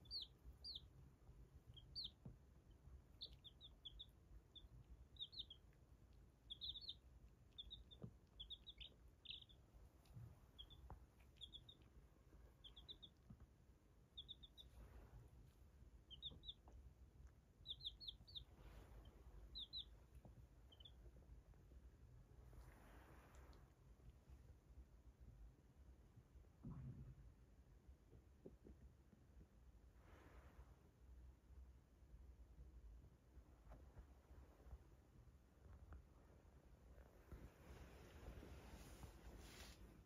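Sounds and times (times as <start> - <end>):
baby chicks peeping: 0.0 - 22.0.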